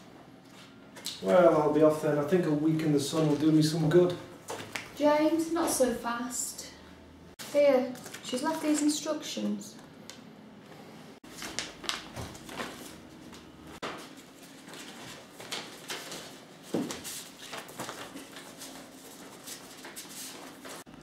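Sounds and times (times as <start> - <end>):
paper envelope rustling: 11.3 - 20.9.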